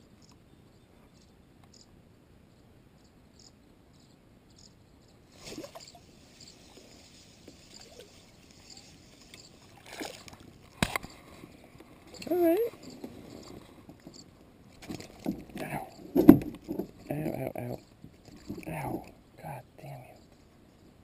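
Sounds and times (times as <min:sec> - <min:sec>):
fishing rod rubbing and rustling: 0:05.3 - 0:19.1.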